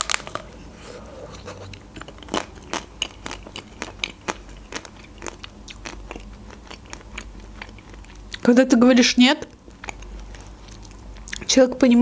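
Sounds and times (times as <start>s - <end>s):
crunchy chewing: 0.0s - 8.5s, 9.4s - 11.5s.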